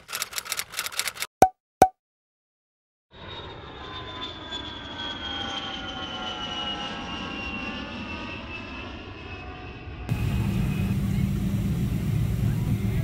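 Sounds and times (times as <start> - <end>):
jet engine rushing with whine: 3.2 - 13.0.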